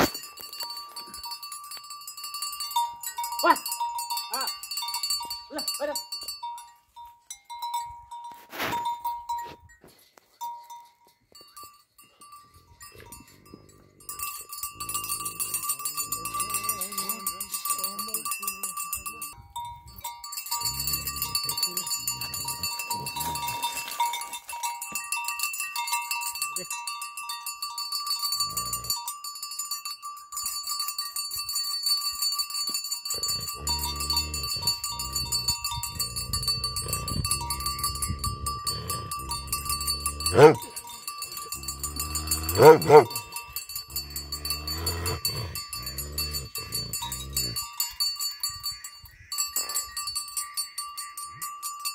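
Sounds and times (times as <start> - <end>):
metal animal bell clanking: 0.0 - 51.9
animal calling: 41.7 - 43.3.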